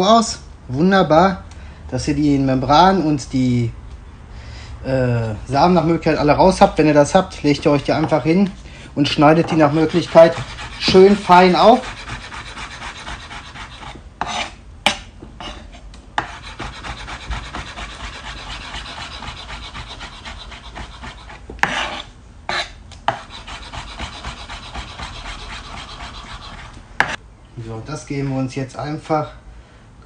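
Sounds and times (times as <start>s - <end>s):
knife chopping on wooden board: 10.2s - 15.6s, 16.2s - 27.2s.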